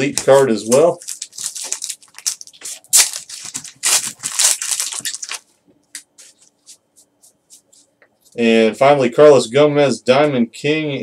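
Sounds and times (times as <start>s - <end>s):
foil wrapper tearing and crinkling: 0.2s - 5.5s.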